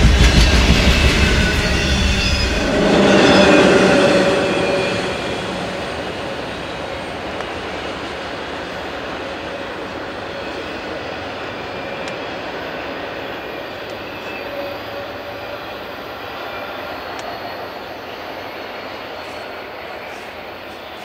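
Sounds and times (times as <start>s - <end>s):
freight train wheels on track: 0.0s - 21.0s.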